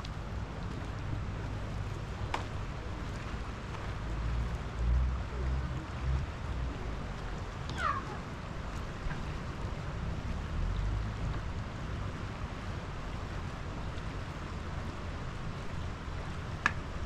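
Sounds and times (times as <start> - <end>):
steady low rumble: 0.0 - 17.0
short falling animal cry: 7.7 - 8.2.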